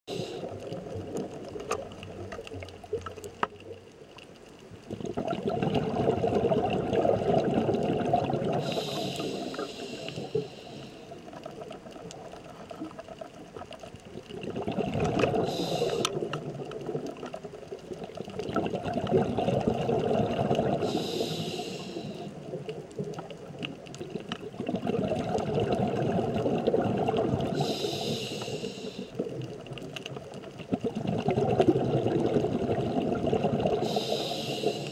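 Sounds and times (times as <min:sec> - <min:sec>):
regulator hiss: 0:00.1 - 0:00.6, 0:08.6 - 0:11.2, 0:15.4 - 0:16.2, 0:20.8 - 0:22.4, 0:27.5 - 0:29.2, 0:33.8 - 0:34.9
exhaled bubbles burbling: 0:00.1 - 0:03.5, 0:04.7 - 0:34.9
faint clicks: 0:00.4 - 0:04.9, 0:09.0 - 0:18.5, 0:27.6 - 0:30.8.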